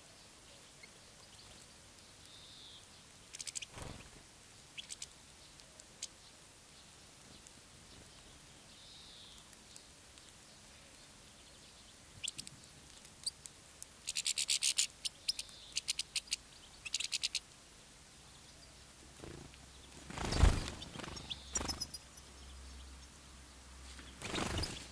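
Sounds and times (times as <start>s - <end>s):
goldfinches twittering: 14.0s - 17.4s, 19.2s - 23.2s, 24.0s - 24.9s.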